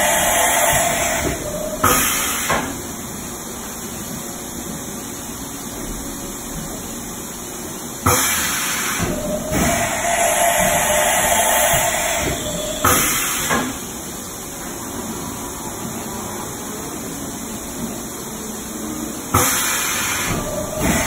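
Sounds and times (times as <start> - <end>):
machining center running: 0.0 - 21.0
loud hissing: 8.7 - 13.5.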